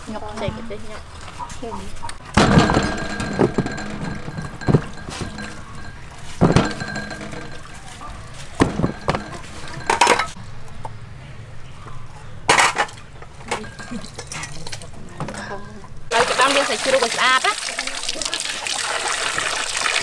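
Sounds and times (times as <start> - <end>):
clinks on metal tray: 2.4 - 7.9, 8.6 - 10.4.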